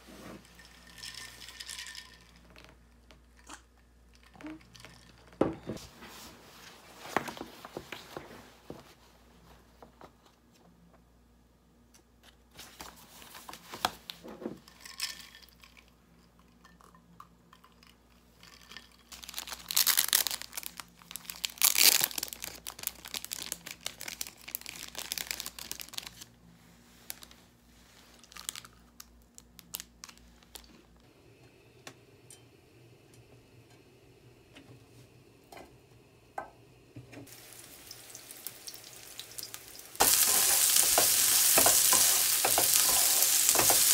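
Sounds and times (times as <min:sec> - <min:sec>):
plastic wrapper crinkling and tearing: 0:19.1 - 0:26.3, 0:27.0 - 0:27.4, 0:28.0 - 0:31.0
garlic sizzling in oil: 0:37.2 - 0:43.9.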